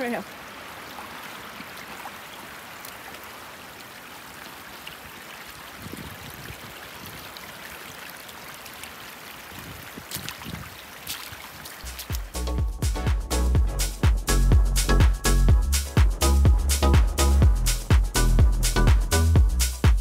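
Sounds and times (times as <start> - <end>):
mountain stream rushing: 0.0 - 12.6
electronic dance music: 11.9 - 20.0.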